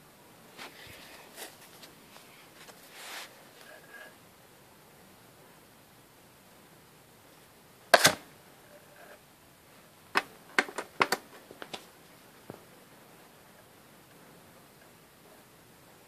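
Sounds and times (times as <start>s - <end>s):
compact disc clicks and taps: 10.1s - 11.9s.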